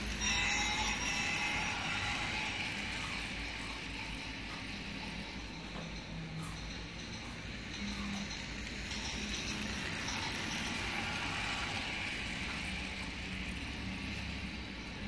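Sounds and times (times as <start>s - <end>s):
toy train wheels clattering: 0.0s - 3.8s, 7.0s - 14.6s.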